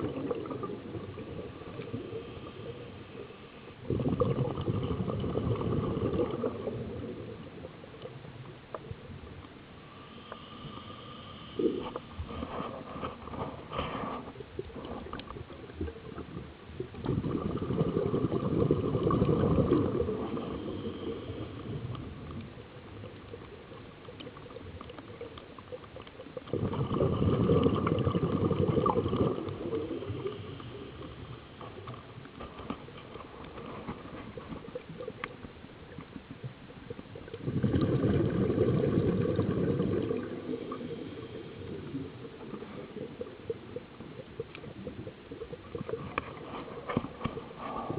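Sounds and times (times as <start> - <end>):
scuba regulator exhaust bubbles: 0.0 - 8.1, 14.6 - 32.0, 33.4 - 47.9.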